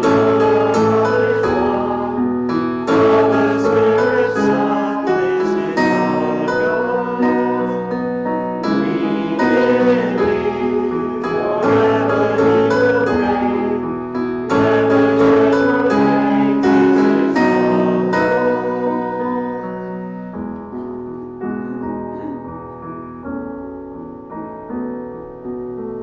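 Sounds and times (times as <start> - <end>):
congregation singing: 0.0 - 20.4
instrumental accompaniment: 0.0 - 25.6.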